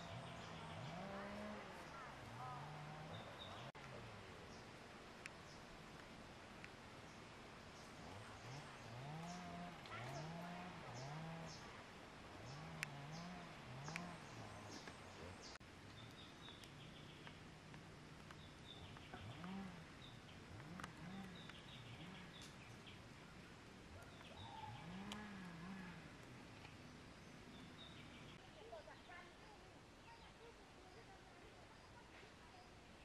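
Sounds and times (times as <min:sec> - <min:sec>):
low rising and falling calls: 0:00.0 - 0:06.1, 0:16.3 - 0:28.4
birds chirping: 0:00.0 - 0:33.0
sharp clicks: 0:13.8 - 0:14.1.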